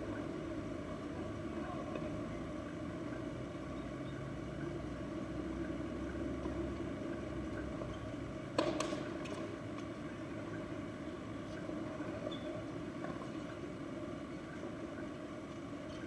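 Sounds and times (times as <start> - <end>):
low background hum: 0.0 - 16.0
tennis ball impact: 8.5 - 9.4.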